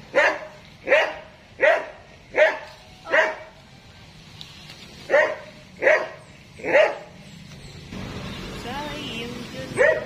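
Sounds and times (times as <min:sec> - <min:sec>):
dog barking: 0:00.1 - 0:03.5, 0:05.1 - 0:07.1, 0:09.8 - 0:10.0.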